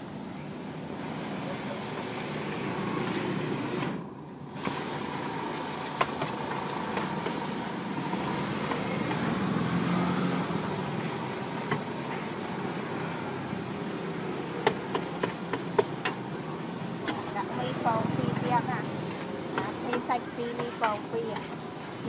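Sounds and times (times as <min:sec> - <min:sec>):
spatula scraping frying pan: 0:18.3 - 0:21.7.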